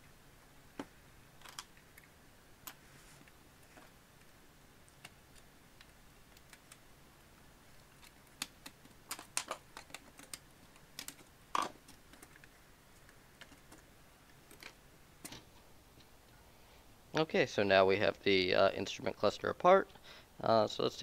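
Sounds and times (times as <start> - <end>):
plastic clips clicking and snapping: 8.0 - 12.5.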